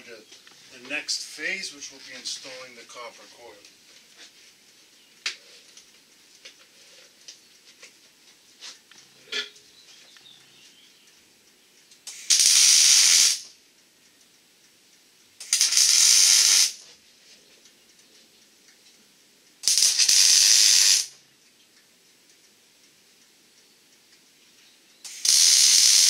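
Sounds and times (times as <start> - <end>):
arc welder hissing: 12.0 - 13.6, 15.4 - 17.0, 19.6 - 21.2, 25.0 - 26.0.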